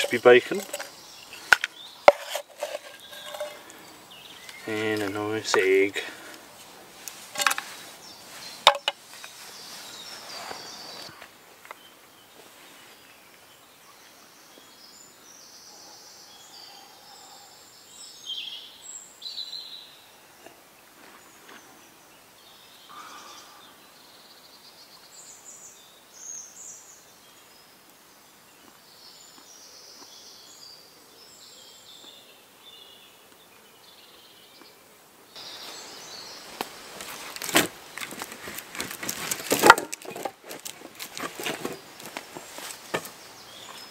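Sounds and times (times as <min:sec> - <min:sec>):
birds calling and singing: 0:00.0 - 0:27.8, 0:28.4 - 0:43.9
steady hiss: 0:34.6 - 0:39.5.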